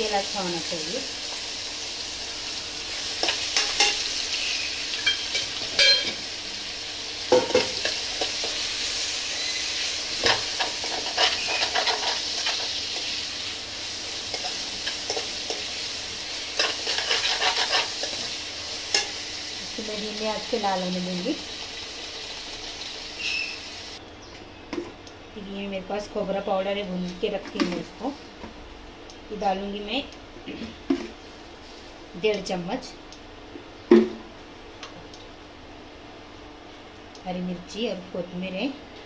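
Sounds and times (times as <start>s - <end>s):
onions sizzling in oil: 0.0s - 24.0s
spoon scraping and knocking pan: 5.0s - 6.2s, 10.2s - 12.8s, 16.6s - 19.2s.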